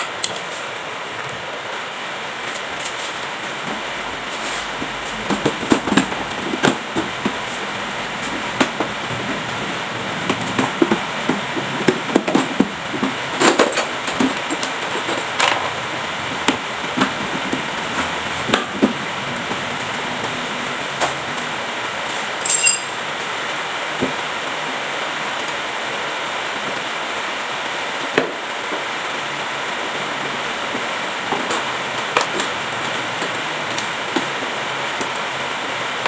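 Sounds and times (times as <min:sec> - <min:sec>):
steady background noise: 0:00.0 - 0:36.0.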